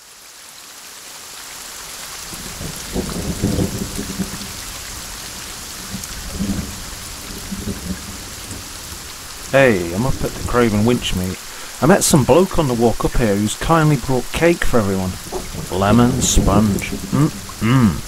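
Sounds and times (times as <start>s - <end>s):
heavy rain on ground and tent: 0.0s - 18.0s
low rumbles: 14.7s - 18.0s.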